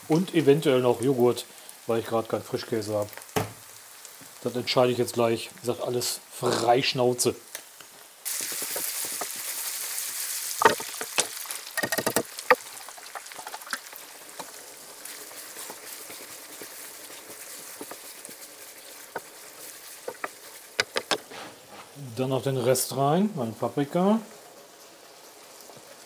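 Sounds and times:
meat sizzling in a frying pan: 0:00.0 - 0:26.0
sharp knocks and clatters: 0:10.6 - 0:12.6, 0:20.0 - 0:21.3
wooden spatula stirring: 0:15.1 - 0:22.0.

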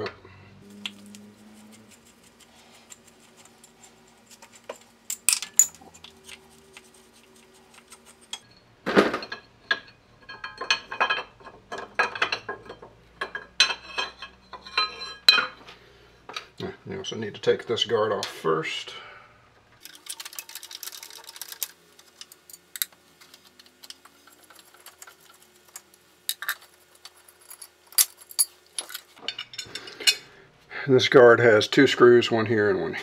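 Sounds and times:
metal parts clinking and clanking: 0:04.3 - 0:06.4, 0:08.3 - 0:15.6, 0:19.8 - 0:30.2.

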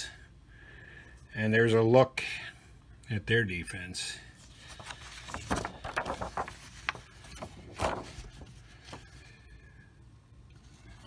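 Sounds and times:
paper cards rustling and sliding: 0:04.4 - 0:09.4.

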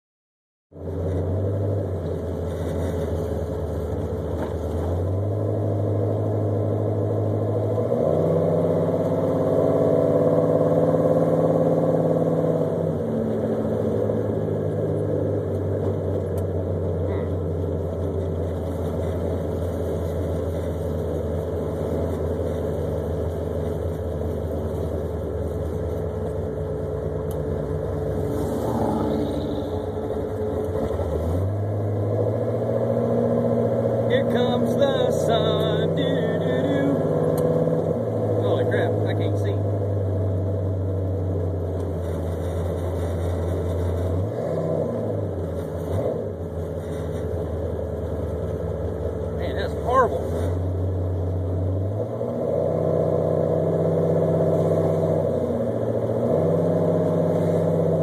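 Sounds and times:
vee eight engine running: 0:00.8 - 0:58.0.

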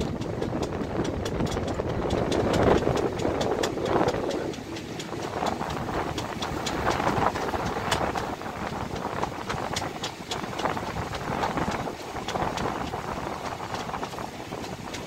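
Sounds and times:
rapid sharp clicks: 0:00.0 - 0:15.0
train rumble and wind rush: 0:00.0 - 0:15.0.

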